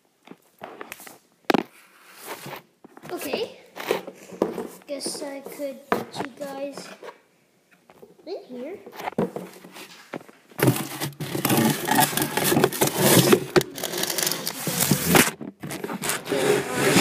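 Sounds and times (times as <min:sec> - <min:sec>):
phone scraping against cardboard: 0:10.6 - 0:17.0.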